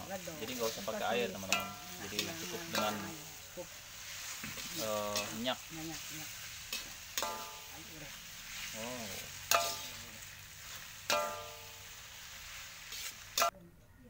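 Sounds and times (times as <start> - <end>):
spatula scraping a pan: 0.0 - 13.5
noodles sizzling in a wok: 0.0 - 13.6
metallic clang: 11.1 - 11.8.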